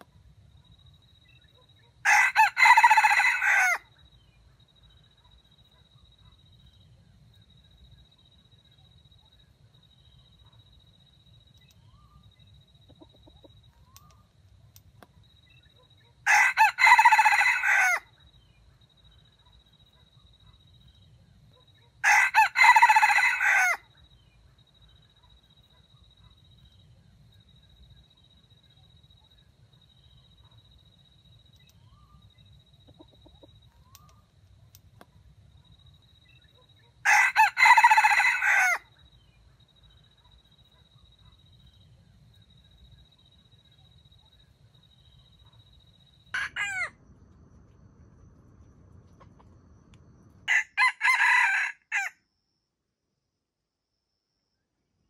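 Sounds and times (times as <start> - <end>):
faint bird chirps: 0.0 - 17.0, 18.0 - 22.0, 23.8 - 38.2, 38.8 - 50.6
rooster crowing: 2.0 - 3.9, 16.2 - 18.1, 22.0 - 23.9, 37.0 - 38.9, 46.3 - 47.0, 50.5 - 52.2.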